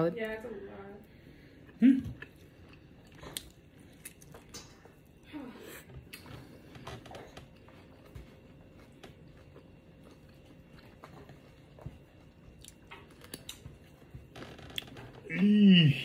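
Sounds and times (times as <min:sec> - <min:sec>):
person chewing: 0:01.6 - 0:05.2, 0:07.4 - 0:15.0.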